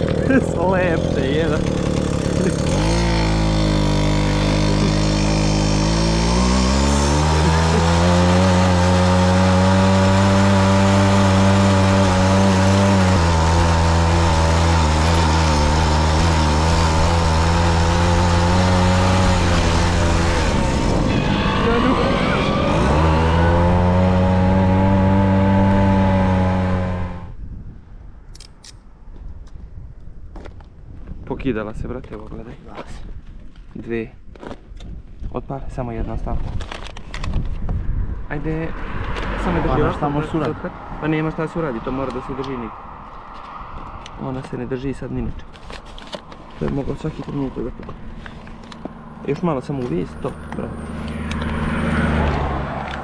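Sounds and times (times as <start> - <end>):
moped engine running: 0.0 - 27.3, 45.7 - 53.0
moped passing: 0.0 - 27.3, 37.9 - 53.0.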